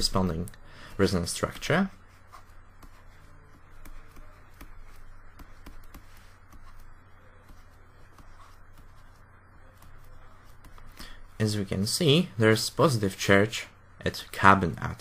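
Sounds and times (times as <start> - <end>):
steady low hum: 0.0 - 15.0
stylus tapping and scraping tablet: 1.4 - 11.4.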